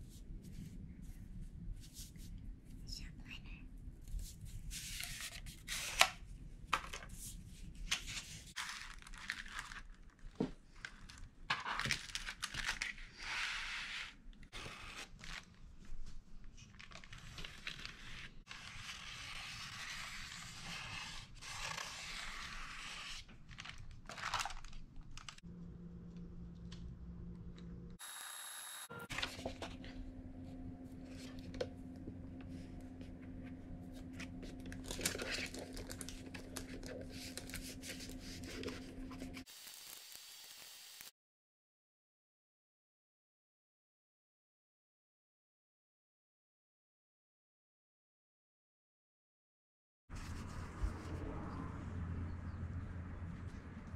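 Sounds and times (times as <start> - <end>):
plastic sheet crinkling: 23.4 - 25.4, 34.0 - 39.4.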